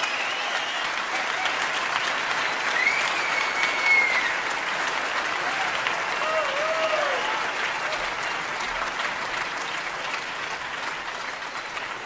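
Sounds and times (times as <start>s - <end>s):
long high whistle: 0.0s - 0.9s, 2.7s - 4.3s
audience applauding: 0.0s - 12.0s.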